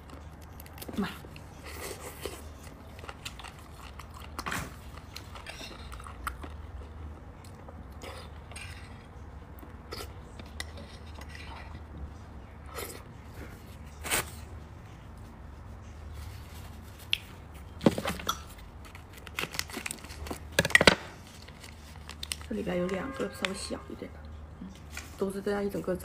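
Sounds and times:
wet chewing and mouth clicks: 0.0s - 11.8s.

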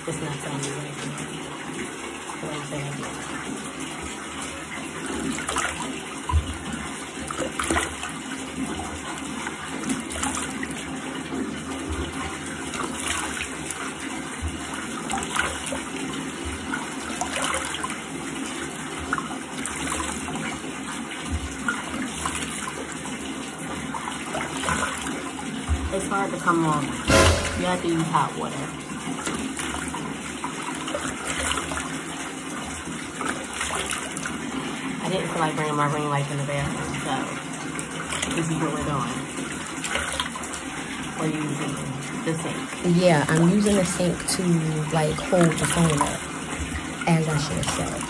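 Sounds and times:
water splashing: 0.0s - 48.0s
tap running into sink: 5.2s - 18.0s, 27.0s - 28.4s.

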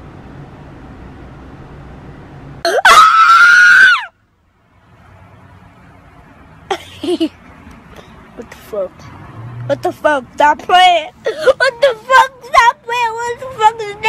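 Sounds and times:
low steady background hum: 0.0s - 14.0s
shrill piercing scream: 2.7s - 4.2s.

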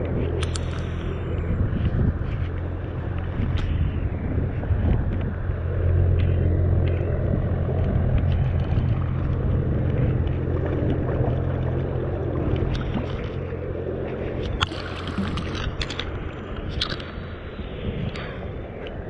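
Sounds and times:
river water rushing over stones: 12.6s - 16.1s.

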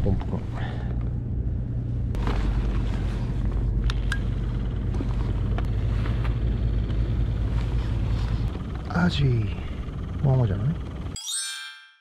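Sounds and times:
aeration pump humming: 2.1s - 11.2s.

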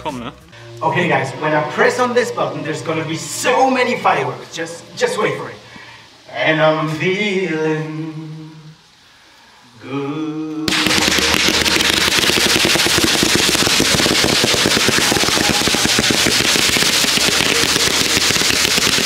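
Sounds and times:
firework volley of rapid shots: 10.7s - 19.0s.

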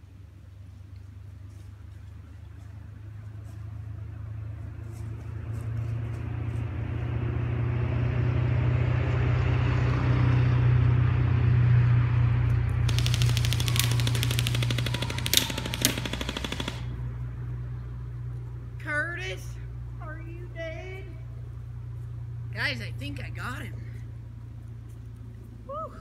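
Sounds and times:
rapid rattle: 12.9s - 16.9s
loud cracks: 12.9s - 17.0s.

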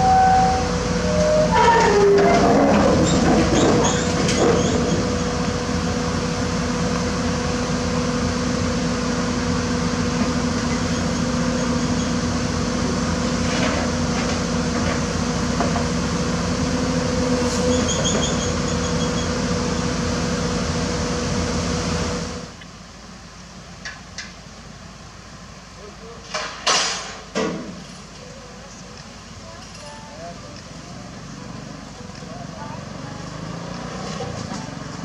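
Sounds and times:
excavator diesel engine running: 0.0s - 26.2s, 27.8s - 35.0s.

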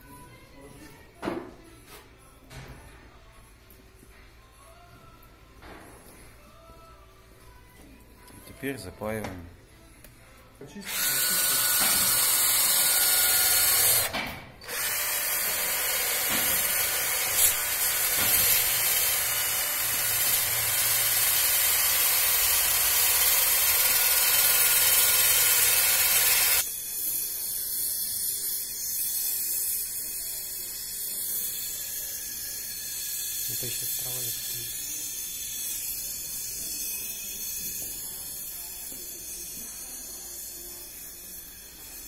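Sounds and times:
drill spinning wire brush on metal: 10.8s - 42.0s.

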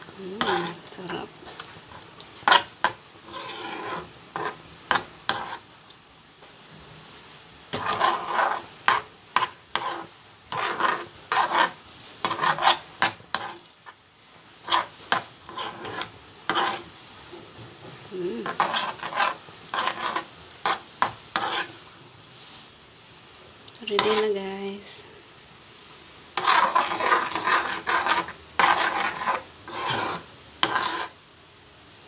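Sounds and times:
spoon scraping sauce in pan: 0.0s - 6.0s, 7.7s - 14.0s, 14.6s - 17.4s, 18.3s - 22.6s, 23.8s - 24.4s, 26.3s - 31.2s.

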